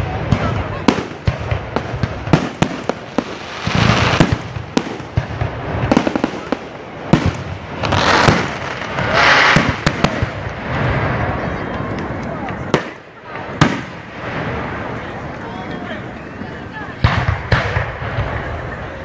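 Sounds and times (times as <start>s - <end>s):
fireworks hissing: 0.0s - 11.5s
fireworks bangs: 0.0s - 19.0s.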